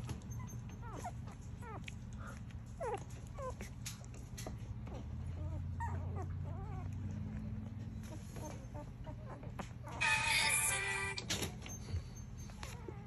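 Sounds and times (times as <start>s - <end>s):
puppies squeaking and whimpering: 0.0s - 13.0s
puppy squealing: 5.4s - 7.0s, 8.1s - 11.2s.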